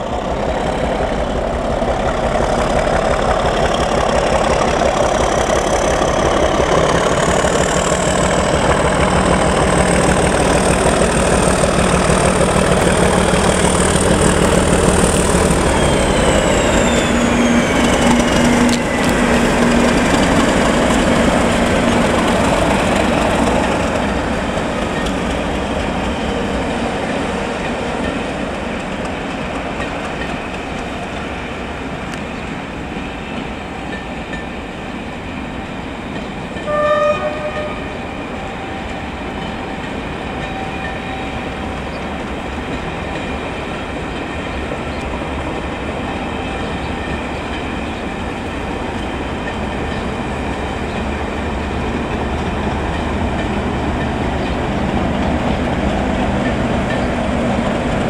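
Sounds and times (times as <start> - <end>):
diesel locomotive engine: 0.0 - 58.0
train wheels clacking on rails: 0.0 - 58.0
short horn-like tone: 36.6 - 39.0.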